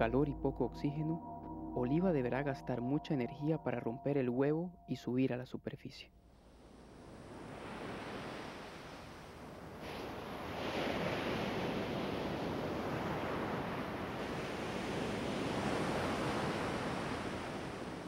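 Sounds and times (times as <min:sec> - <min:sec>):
ocean surf breaking: 0:06.6 - 0:18.0.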